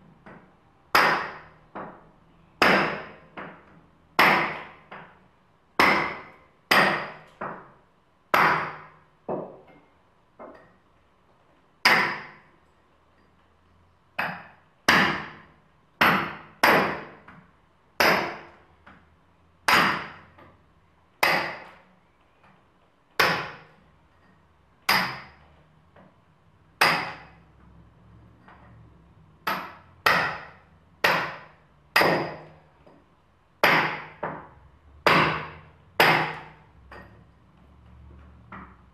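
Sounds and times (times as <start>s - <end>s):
sharp hammer-like knocks: 0.2s - 5.2s, 5.8s - 9.8s, 11.8s - 12.5s, 14.2s - 17.4s, 18.0s - 19.0s, 19.7s - 20.5s, 21.2s - 21.8s, 23.2s - 23.8s, 24.9s - 25.5s, 26.8s - 27.4s, 29.4s - 33.0s, 33.6s - 37.2s.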